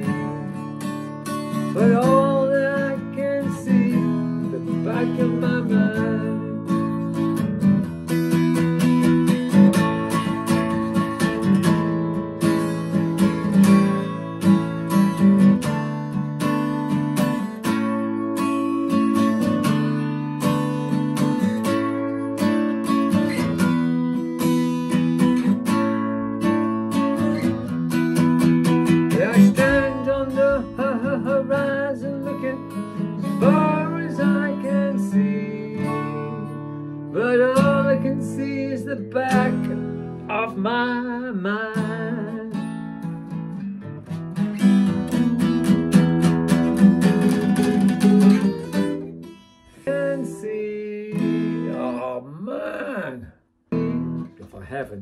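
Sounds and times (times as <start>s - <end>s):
man singing: 0.0s - 7.2s, 28.8s - 42.8s, 49.7s - 55.0s
acoustic guitar strumming: 0.0s - 55.0s.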